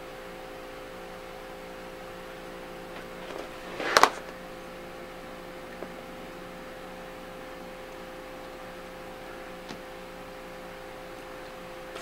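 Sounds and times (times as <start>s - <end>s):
electrical hum: 0.0s - 12.0s
handling rustle: 2.9s - 4.4s.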